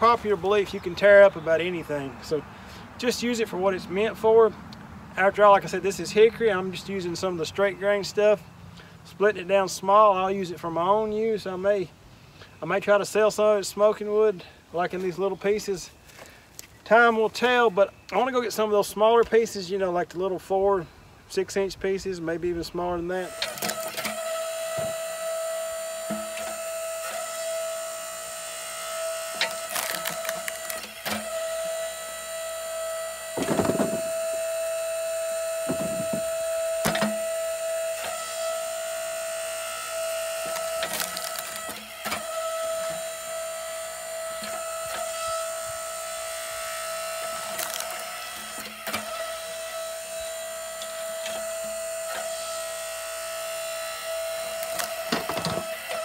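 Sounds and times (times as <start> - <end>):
log splitter motor whining: 0.0 - 11.6, 23.1 - 56.0
wood splitting cracks: 23.3 - 25.0, 29.4 - 31.5, 33.4 - 34.3, 40.4 - 42.5, 47.4 - 49.3, 54.5 - 56.0.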